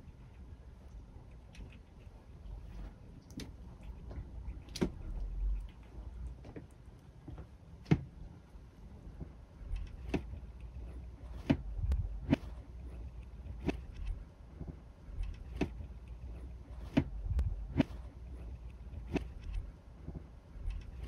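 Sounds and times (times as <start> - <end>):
low rumble: 8.6 - 21.0.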